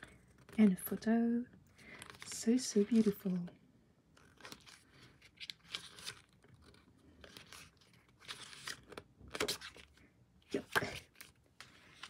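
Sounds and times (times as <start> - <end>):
paper pages turning: 1.9 - 3.4, 4.1 - 12.0.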